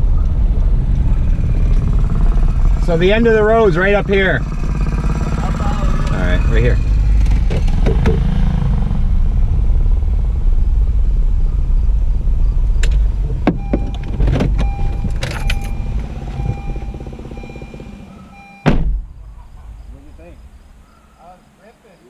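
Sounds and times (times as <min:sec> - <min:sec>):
car engine and road rumble: 0:00.0 - 0:22.0
sharp clicks and knocks: 0:07.2 - 0:08.3.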